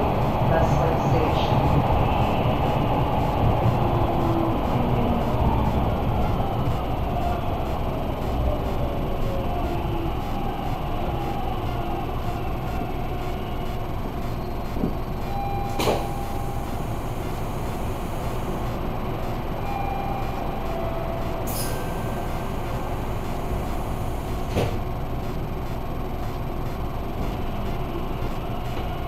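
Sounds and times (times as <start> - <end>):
subway train rumble: 0.0 - 29.0.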